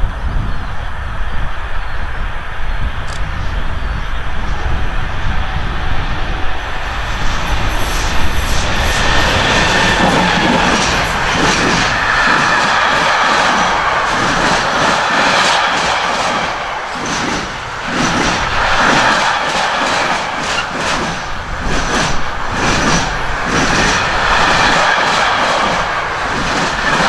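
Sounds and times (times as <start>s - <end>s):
freight train rumbling past: 0.0s - 27.0s
train wheels clattering: 6.6s - 27.0s.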